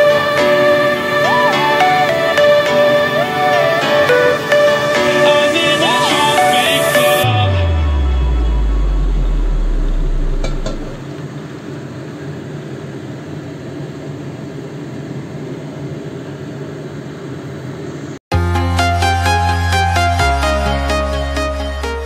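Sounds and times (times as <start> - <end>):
deep bass music tone: 7.2 - 11.0.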